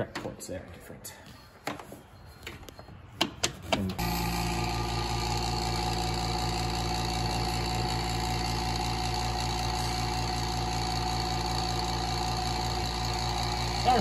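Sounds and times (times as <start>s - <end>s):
vacuum pump pulsing hum: 4.0s - 14.0s.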